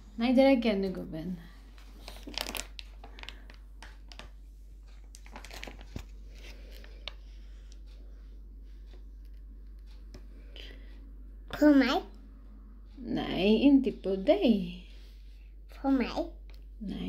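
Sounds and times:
low steady hum: 0.0s - 17.0s
handling rustling and clicks: 1.8s - 7.2s.

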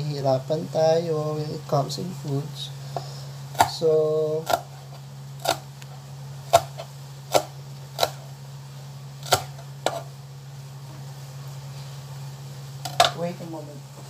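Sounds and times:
knife chopping on cutting board: 3.6s - 3.8s, 4.4s - 4.8s, 5.4s - 5.6s, 6.5s - 8.3s, 9.2s - 10.1s.

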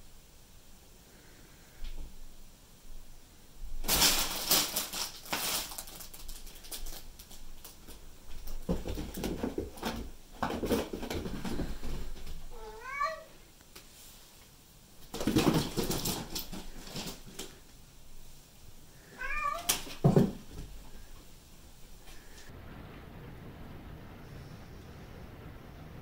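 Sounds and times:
cat meowing: 12.5s - 13.4s, 19.0s - 19.8s.

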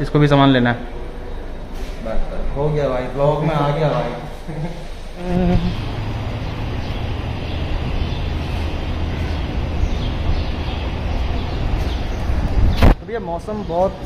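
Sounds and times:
vehicle rumble: 5.0s - 13.0s
road hiss: 5.6s - 13.0s.

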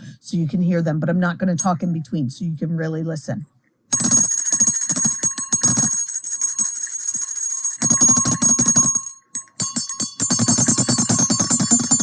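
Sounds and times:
cracked hand bell deeper ringing: 4.0s - 12.0s.

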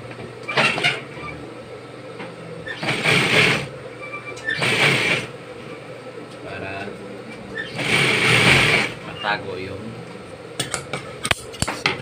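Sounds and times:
motor humming: 0.0s - 11.3s
sewing machine stitching: 0.5s - 1.4s, 2.6s - 3.7s, 4.4s - 5.3s, 7.6s - 9.0s.

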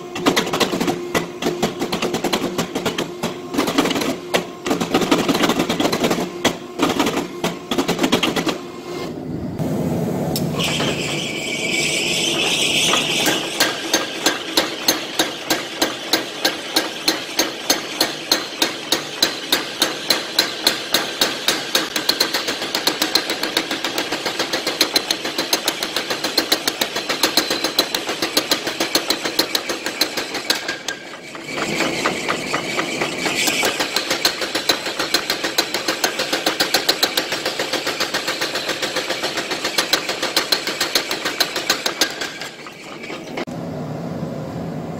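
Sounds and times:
power hammer striking hot steel: 12.3s - 43.5s.

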